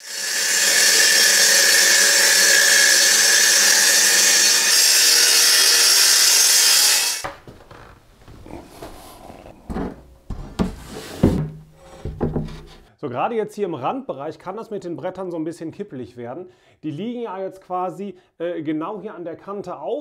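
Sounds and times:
circular saw cutting board: 0:00.0 - 0:07.9, 0:08.7 - 0:12.9
board knocking and rubbing: 0:07.2 - 0:12.9.

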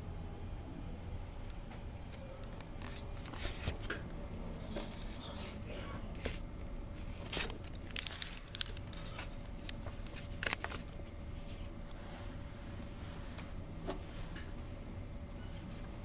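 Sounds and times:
faint steady hum: 0:00.0 - 0:16.0
rustling handling noises: 0:02.2 - 0:04.0, 0:04.6 - 0:12.5.

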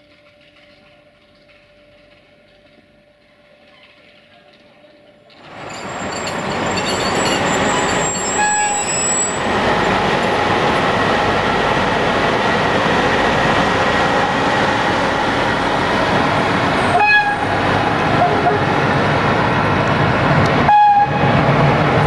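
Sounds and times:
train rolling on rails: 0:00.0 - 0:22.0
high wheel squeal: 0:05.6 - 0:09.6.

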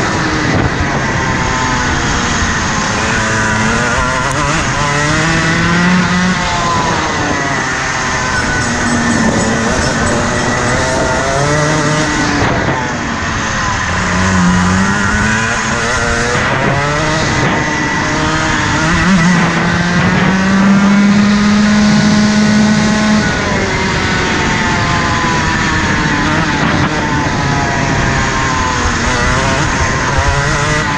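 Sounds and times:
kart engine revving: 0:00.0 - 0:30.9.

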